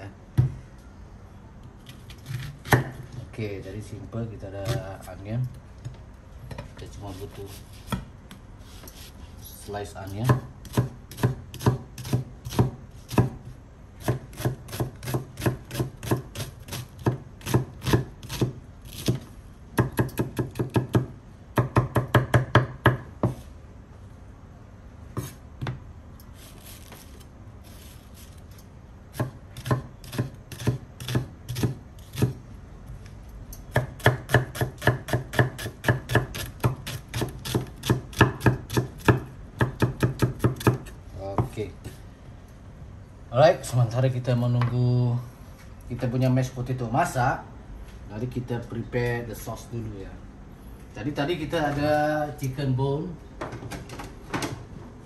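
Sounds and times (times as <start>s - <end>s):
knife slicing onion on cutting board: 1.8s - 3.1s, 10.0s - 23.4s, 25.1s - 25.8s, 29.1s - 32.4s, 33.7s - 41.5s.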